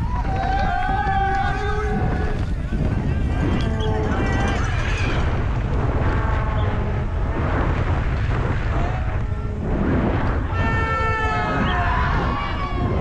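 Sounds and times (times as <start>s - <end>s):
bike tyres rumbling on dirt: 0.0s - 13.0s
wind rush: 0.0s - 13.0s.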